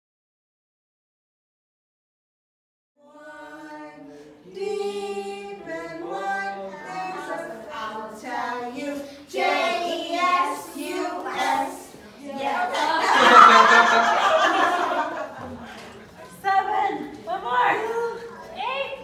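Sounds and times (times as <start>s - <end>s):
children singing together: 3.0s - 15.7s.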